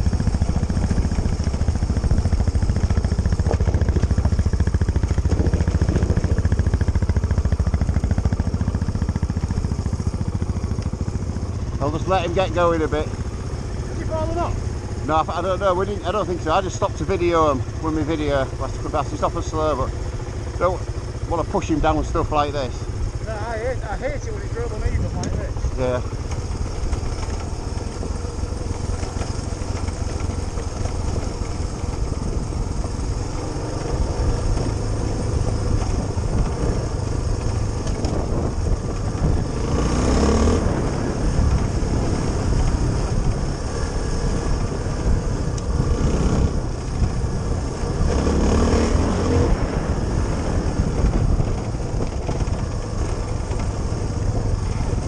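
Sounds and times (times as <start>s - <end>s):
motorcycle engine running: 0.0s - 55.0s
wind rumble on microphone: 0.0s - 55.0s.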